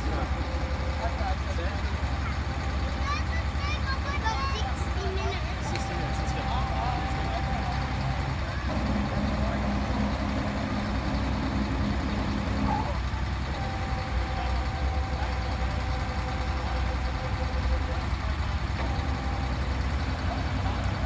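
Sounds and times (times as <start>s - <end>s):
engine low rumble: 0.0s - 21.0s
thin steady whine: 5.0s - 21.0s.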